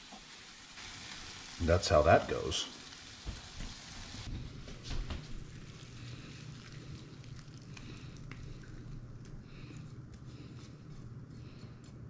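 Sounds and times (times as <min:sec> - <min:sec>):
faint sizzling in frying pan: 0:00.0 - 0:07.3.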